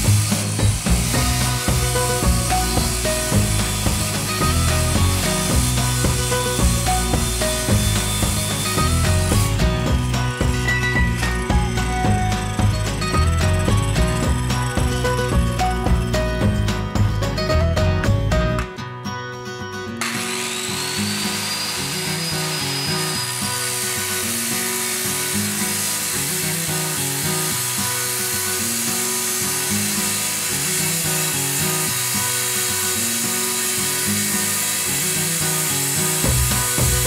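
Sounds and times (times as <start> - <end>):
circular saw cutting plywood: 0.0 - 17.5, 20.0 - 37.0.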